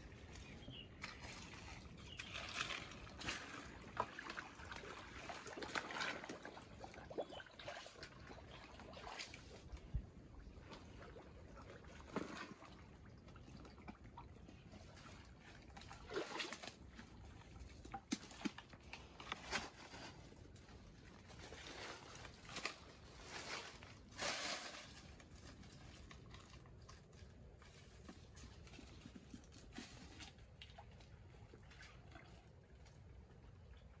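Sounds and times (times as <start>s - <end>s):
water splashes: 0.0s - 19.4s.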